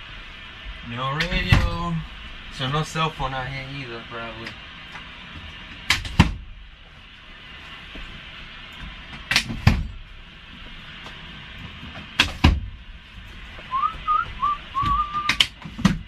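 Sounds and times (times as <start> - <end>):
steady hiss: 0.0 - 15.9
person whistling: 13.7 - 15.4.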